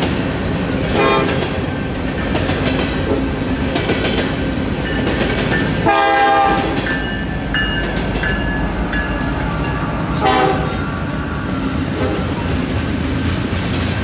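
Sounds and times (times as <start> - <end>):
freight train rumble and wheel clatter: 0.0 - 14.0
locomotive horn blasts: 0.9 - 1.4, 5.8 - 6.8, 10.2 - 10.8, 11.9 - 12.4
crossing bell dinging: 4.8 - 11.8.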